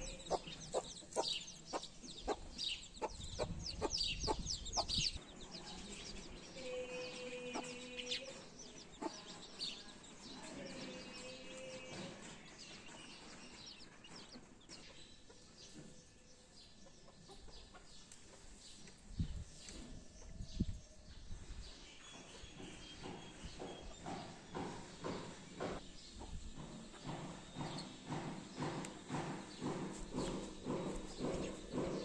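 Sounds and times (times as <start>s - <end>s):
chicks peeping: 0.0s - 20.9s.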